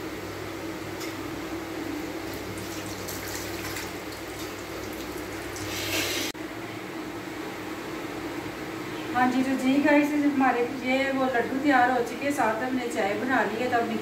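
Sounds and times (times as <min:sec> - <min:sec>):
food deep-frying in hot oil: 0:02.2 - 0:06.3.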